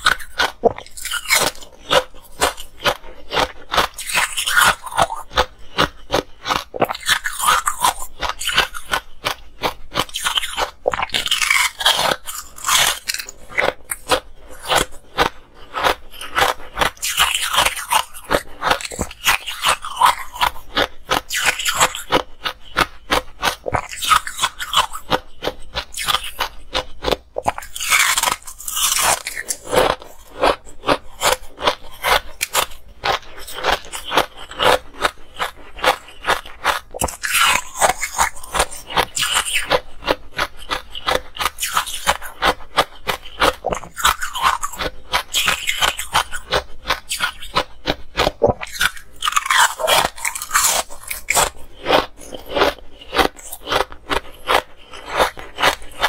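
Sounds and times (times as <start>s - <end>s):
ice crunching being chewed: 0.0s - 56.0s.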